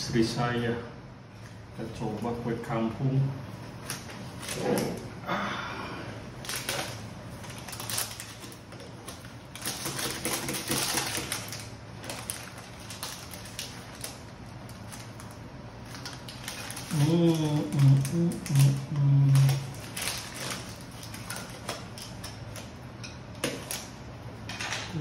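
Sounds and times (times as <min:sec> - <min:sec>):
paper wrapping crinkling: 0:03.6 - 0:05.0, 0:06.4 - 0:22.8.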